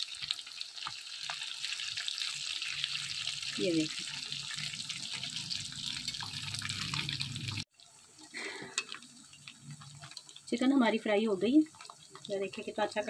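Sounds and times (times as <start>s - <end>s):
chicken deep-frying in hot oil: 0.0s - 13.0s.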